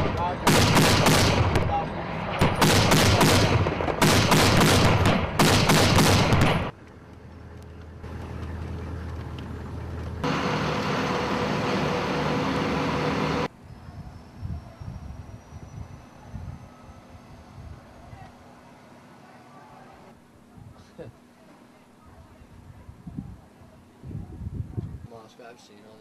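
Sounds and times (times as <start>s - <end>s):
heavy automatic gunfire: 0.0s - 6.7s
truck engine humming: 0.0s - 20.4s.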